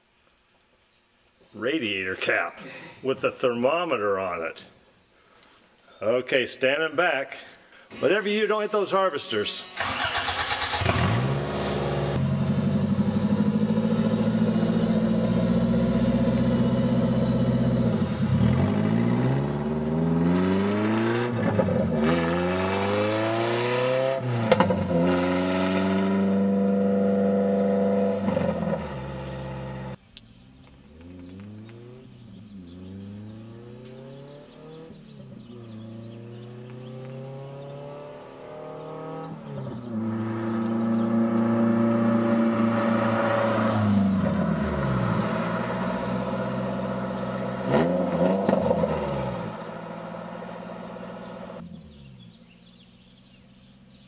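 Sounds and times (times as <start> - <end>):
car engine revving through gears: 9.7 - 30.0, 30.8 - 53.2.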